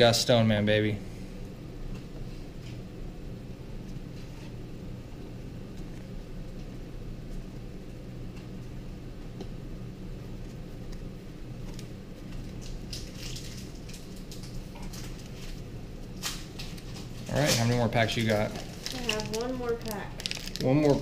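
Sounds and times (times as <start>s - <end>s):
steady low hum: 0.0s - 21.0s
foil wrappers crinkling: 11.6s - 21.0s.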